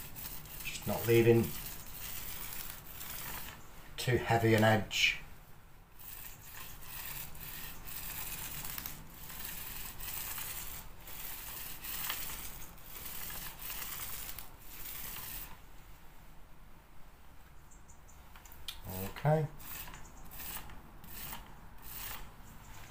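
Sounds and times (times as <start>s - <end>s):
paint roller rasping on wall: 0.0s - 4.6s, 6.0s - 15.7s, 19.4s - 22.9s.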